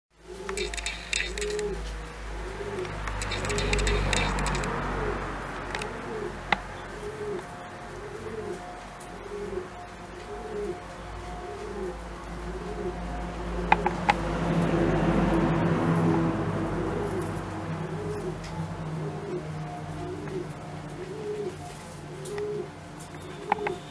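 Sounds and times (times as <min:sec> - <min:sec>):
pigeon cooing: 0:00.2 - 0:14.1, 0:16.3 - 0:23.9
crackling: 0:00.4 - 0:04.9.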